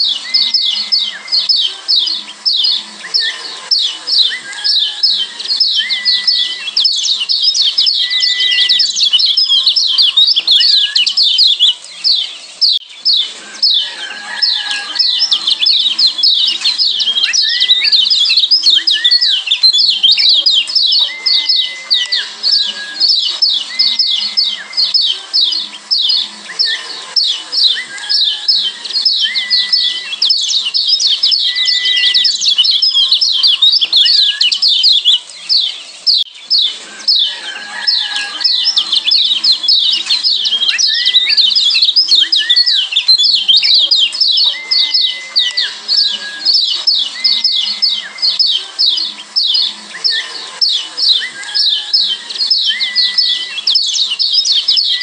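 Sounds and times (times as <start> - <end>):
short whistled bird notes: 0.0 - 12.2
birds chirping sharply: 0.0 - 55.0.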